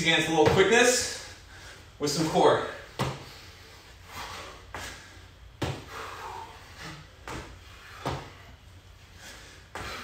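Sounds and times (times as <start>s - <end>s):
sneakers landing on concrete floor: 0.3s - 1.1s, 2.9s - 3.4s, 4.7s - 6.0s, 7.2s - 8.4s, 9.7s - 10.0s.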